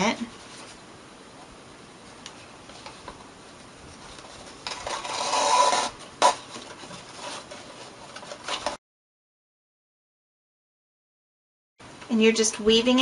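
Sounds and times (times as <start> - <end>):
paper rustling: 0.3 - 0.9, 2.1 - 8.8
ribbon rasping through paper holes: 4.1 - 7.5.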